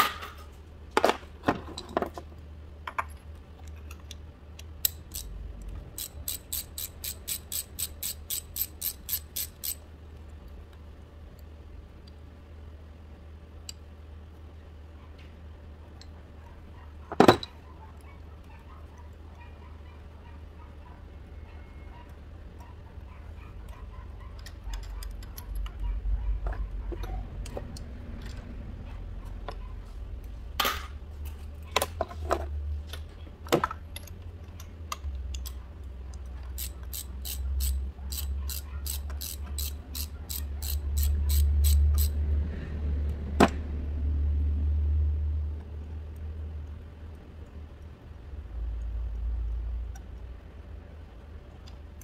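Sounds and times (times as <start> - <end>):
hand ratchet clicking: 4.8 - 9.8, 36.5 - 42.2.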